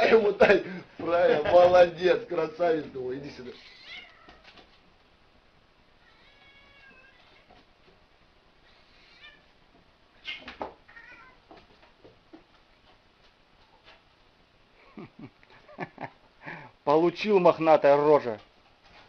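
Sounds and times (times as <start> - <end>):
cat meowing faintly: 3.4 - 4.6, 6.0 - 7.6, 10.2 - 11.4.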